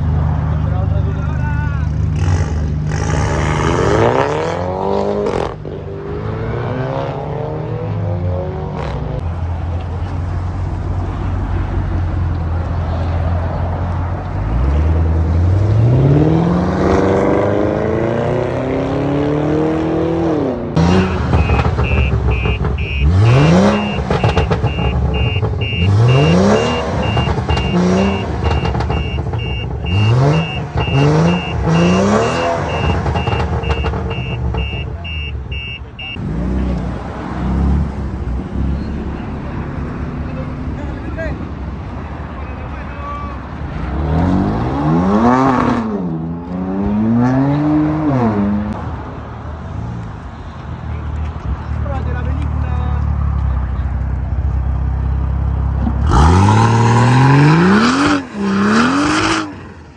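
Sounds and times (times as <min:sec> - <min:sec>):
car engines revving hard: 0:00.0 - 0:50.2, 0:50.9 - 0:59.9
parked car revving blips: 0:19.4 - 0:36.9
rapid electronic beeping chime: 0:21.0 - 0:36.2.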